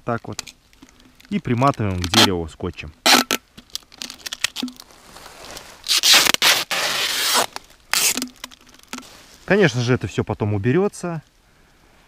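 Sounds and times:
adhesive tape ripping off roll: 0:02.0 - 0:02.3, 0:03.0 - 0:04.7, 0:05.5 - 0:08.6.

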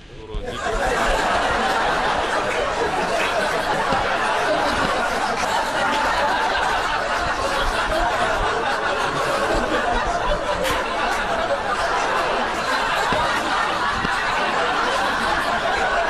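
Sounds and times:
crowd laughing and chattering: 0:00.0 - 0:16.0.

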